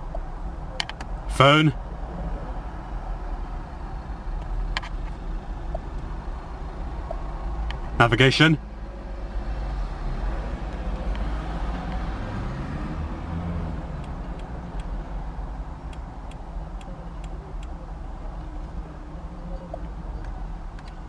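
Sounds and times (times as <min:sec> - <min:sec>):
low vehicle rumble: 0:08.6 - 0:21.0
engine note rising and falling: 0:09.5 - 0:15.0.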